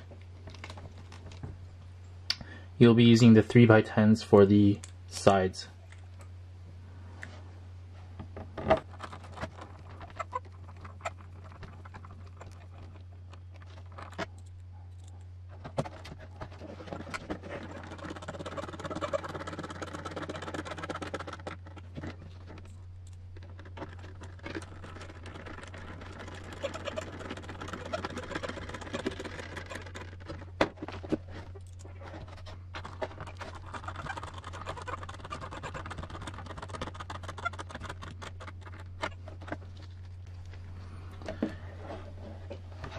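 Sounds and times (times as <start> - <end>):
steady low hum: 0.0 - 42.9
scratchy screwdriver turning: 23.1 - 30.4, 31.6 - 39.1.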